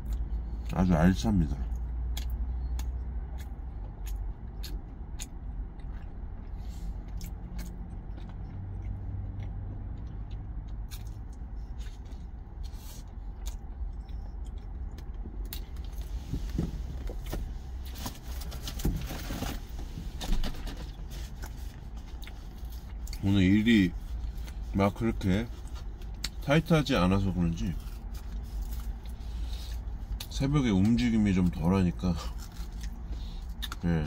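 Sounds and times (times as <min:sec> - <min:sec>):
rustling and scraping: 0:15.7 - 0:22.8
person eating sandwich: 0:27.7 - 0:30.3, 0:32.1 - 0:33.8.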